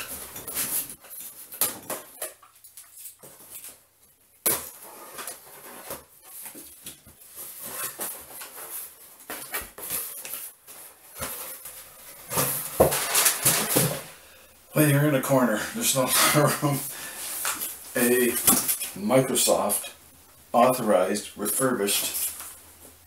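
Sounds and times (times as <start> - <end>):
cardboard flaps scraping: 4.7 - 14.2.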